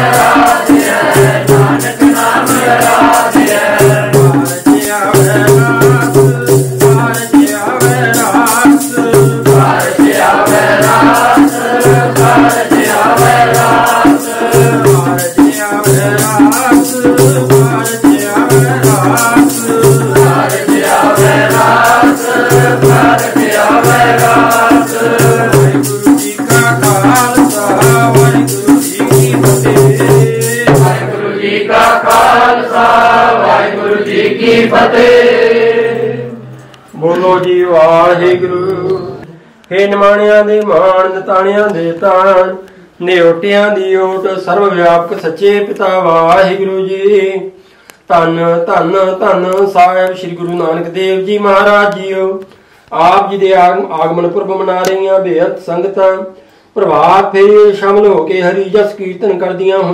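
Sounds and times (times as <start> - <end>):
hand drum beat: 0.0 - 31.1
jingling percussion: 0.0 - 31.1, 31.7 - 33.1
voices singing a hymn: 0.0 - 45.0.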